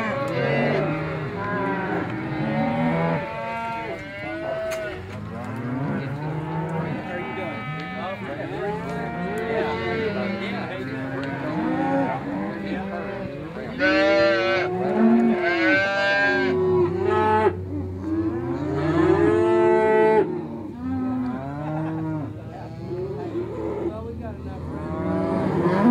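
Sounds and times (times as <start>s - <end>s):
cattle mooing: 0.0s - 25.9s
loud drawn-out cow calls: 13.8s - 17.6s.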